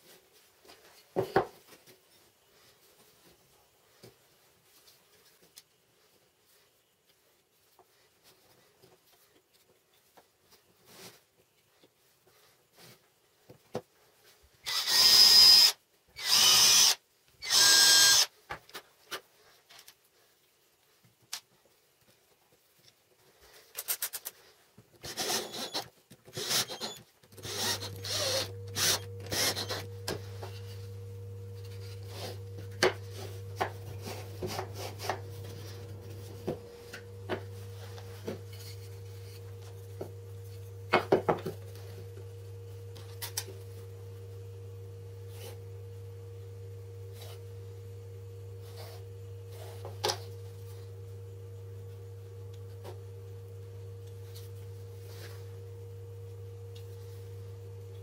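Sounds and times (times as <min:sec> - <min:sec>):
steady low hum: 0:26.7 - 0:58.0.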